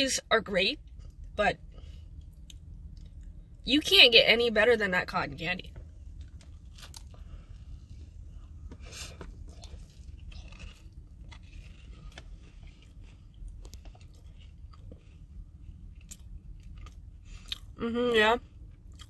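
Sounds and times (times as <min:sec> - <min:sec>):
person chewing a soft cookie: 0:00.8 - 0:03.6, 0:05.6 - 0:17.8, 0:18.4 - 0:19.0.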